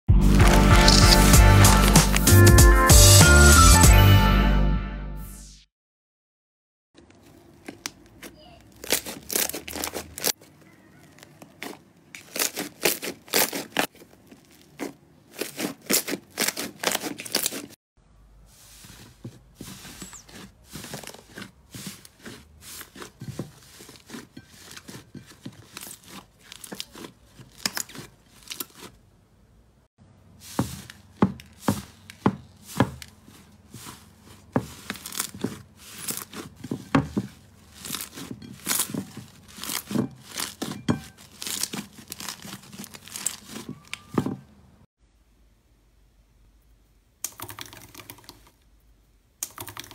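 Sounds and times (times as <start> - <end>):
slime crackling and squelching: 0.2 - 2.4, 7.2 - 17.8, 18.6 - 29.0, 30.4 - 44.2.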